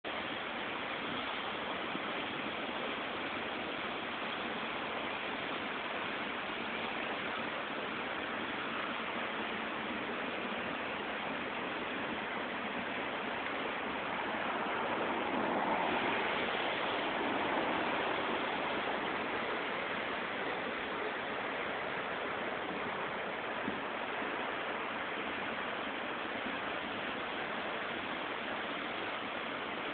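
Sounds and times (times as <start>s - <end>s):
creek rushing water: 0.0s - 29.9s.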